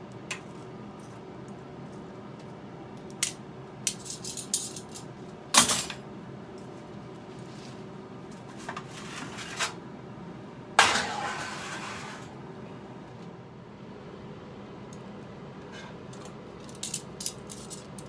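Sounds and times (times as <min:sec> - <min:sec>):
loud metallic clank: 0:10.8 - 0:11.9
metal broiler pan clattering: 0:10.8 - 0:12.3.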